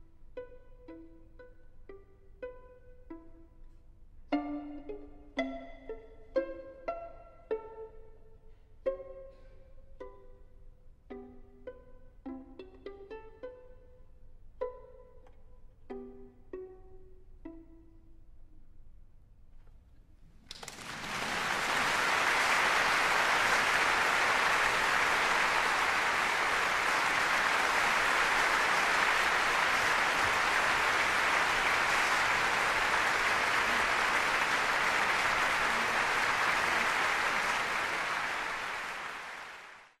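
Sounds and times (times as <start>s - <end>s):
audience applauding: 20.5s - 40.0s.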